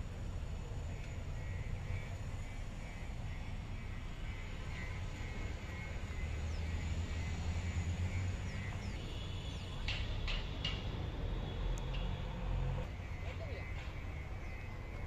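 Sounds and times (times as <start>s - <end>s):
small birds chirping: 0.4s - 11.0s.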